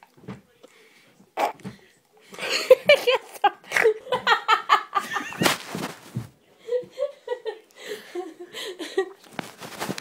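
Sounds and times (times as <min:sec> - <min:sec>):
woman laughing uncontrollably: 0:02.4 - 0:05.6.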